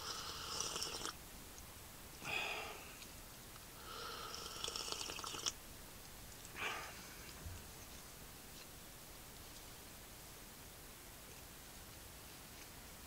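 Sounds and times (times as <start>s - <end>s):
person slurping coffee: 0.0s - 1.2s, 4.1s - 5.6s
short breathy sound: 6.5s - 7.4s.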